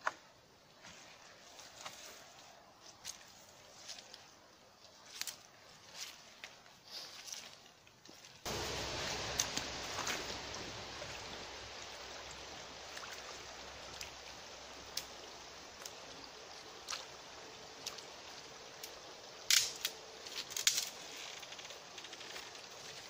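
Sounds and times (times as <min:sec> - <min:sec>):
forest river rushing: 0:08.4 - 0:23.0
wet branch cracking and snapping: 0:18.8 - 0:21.0.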